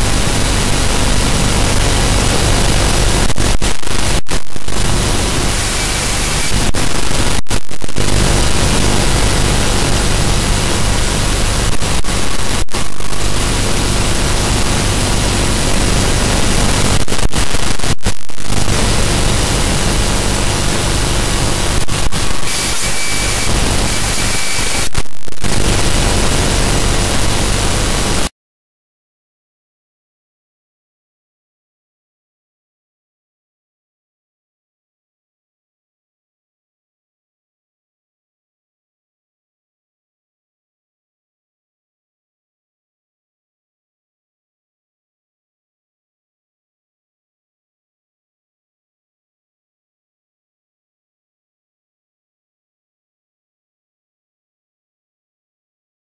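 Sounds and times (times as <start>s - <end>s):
static hiss: 0.0s - 28.3s.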